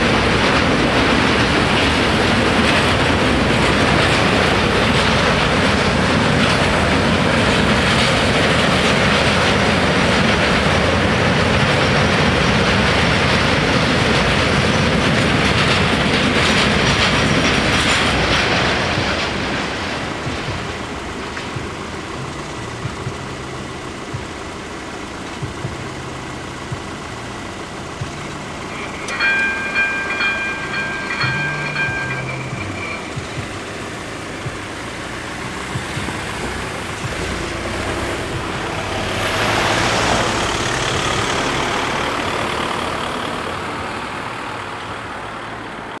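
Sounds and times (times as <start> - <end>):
cars driving over crossing: 0.0 - 46.0
high steady ringing tones: 15.8 - 39.0
barrier motor hum: 16.9 - 43.8.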